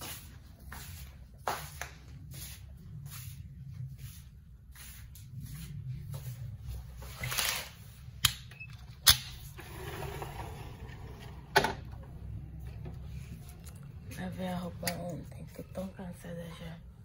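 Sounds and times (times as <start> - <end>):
window frame scraping along track: 9.4 - 12.2.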